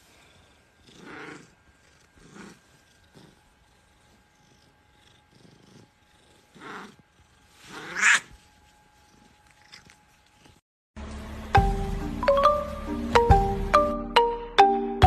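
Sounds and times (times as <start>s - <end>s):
cat meowing: 7.8s - 8.3s
light chiming music: 11.0s - 15.0s.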